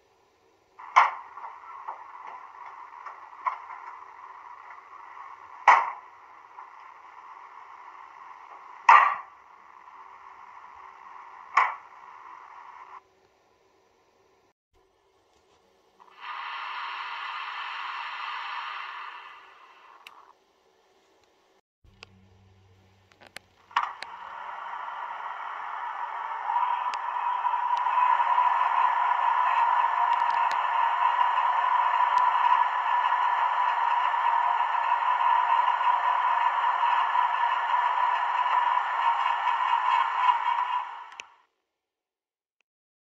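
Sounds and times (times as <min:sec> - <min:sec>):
steady hiss: 0:15.8 - 0:20.3
faint low hum: 0:19.3 - 0:41.2
burner rushing noise from speaker: 0:23.6 - 0:41.2.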